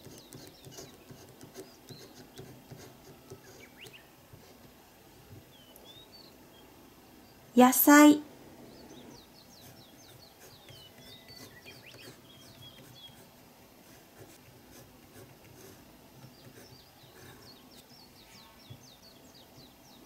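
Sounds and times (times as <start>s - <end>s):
faint steady hum: 0.0s - 20.0s
high bird chirps: 7.9s - 13.2s.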